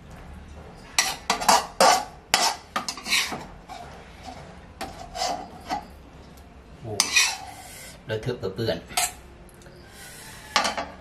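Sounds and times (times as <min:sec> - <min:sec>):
metal spatula scraping a wok: 0:00.8 - 0:06.0, 0:07.0 - 0:08.0.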